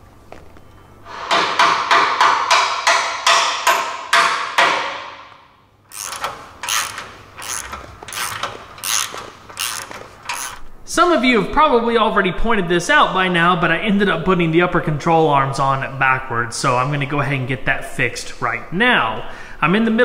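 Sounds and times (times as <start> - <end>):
hammer tapping steel: 1.1 - 5.4
ratchet wrench turning bolt: 5.9 - 10.7.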